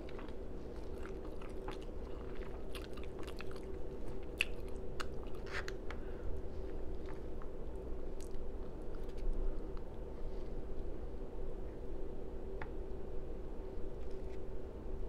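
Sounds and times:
chewing with lip smacking: 0:00.0 - 0:06.0, 0:08.2 - 0:09.9.

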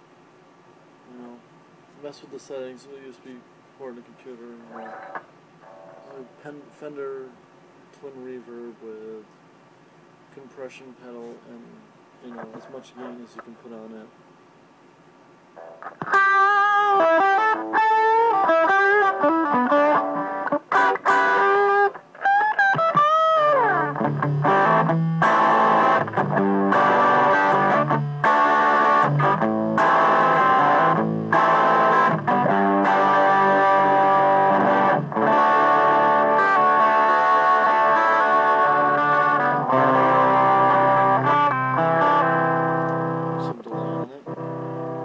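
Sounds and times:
electric guitar playing: 0:04.7 - 0:06.4, 0:15.6 - 0:45.0.

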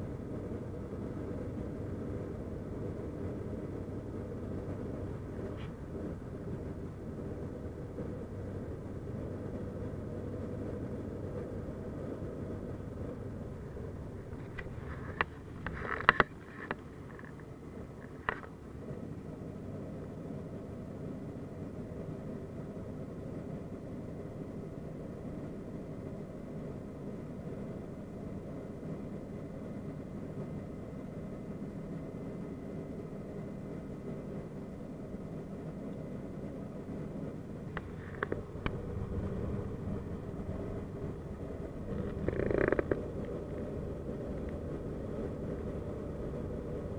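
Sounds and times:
airliner engines droning in cabin: 0:00.0 - 0:46.9
sharp clicks and knocks: 0:14.3 - 0:18.5.

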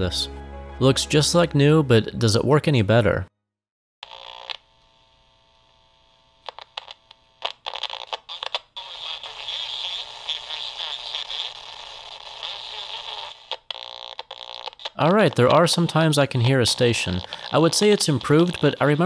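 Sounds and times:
radio crackles and clicks: 0:06.0 - 0:19.0
radio static hiss: 0:06.4 - 0:19.0
faint radio station: 0:14.2 - 0:19.0.

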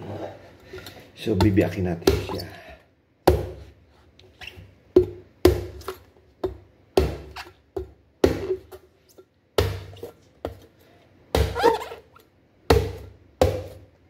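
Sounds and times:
cleaver chopping coconut: 0:01.3 - 0:02.4, 0:03.3 - 0:03.6, 0:05.0 - 0:05.8, 0:07.0 - 0:07.4, 0:08.2 - 0:08.6, 0:09.6 - 0:10.0, 0:11.3 - 0:12.0, 0:12.7 - 0:13.8.

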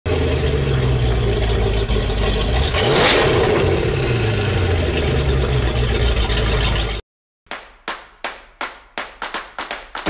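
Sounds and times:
motorboat engine rumbling: 0:00.1 - 0:07.0.

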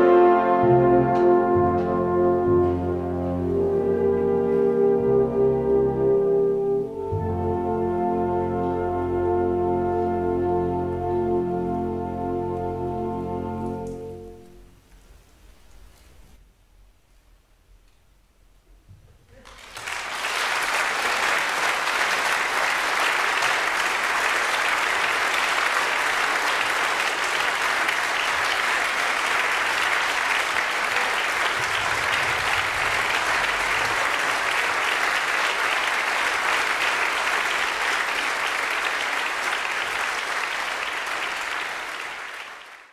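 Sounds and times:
audience applauding: 0:19.3 - 0:42.9.

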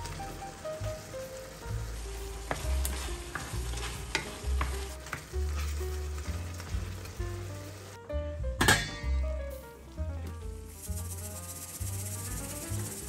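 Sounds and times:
tomato sauce sizzling in a pan: 0:00.0 - 0:08.0, 0:09.4 - 0:13.0
background music: 0:00.0 - 0:13.0.

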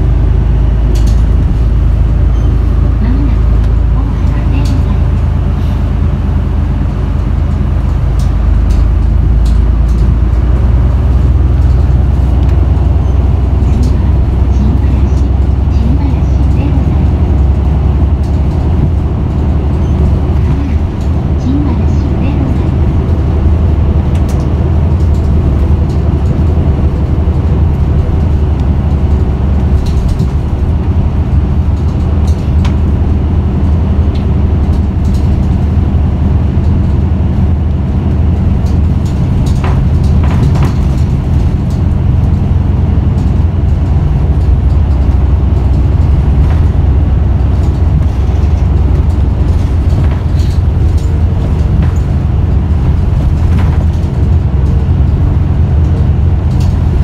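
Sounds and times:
bus diesel engine rumbling: 0:00.0 - 0:57.0
knocks and rattles: 0:22.2 - 0:35.8, 0:38.0 - 0:57.0.

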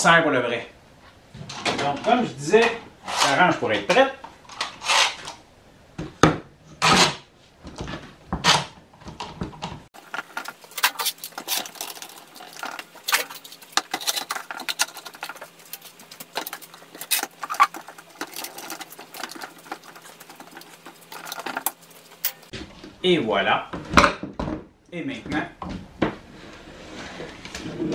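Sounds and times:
metal clamps clicking and rattling: 0:10.0 - 0:22.5.

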